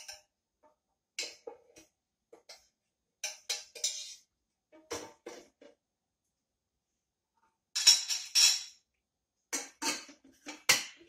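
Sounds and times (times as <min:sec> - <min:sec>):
metal kitchenware clinking: 0:00.0 - 0:00.3, 0:01.2 - 0:05.5, 0:07.7 - 0:08.8, 0:09.5 - 0:11.0.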